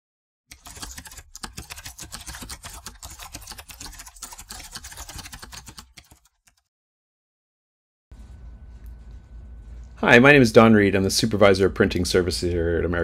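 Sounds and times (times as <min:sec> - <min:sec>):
rapid keyboard typing clicks: 0:00.5 - 0:06.7.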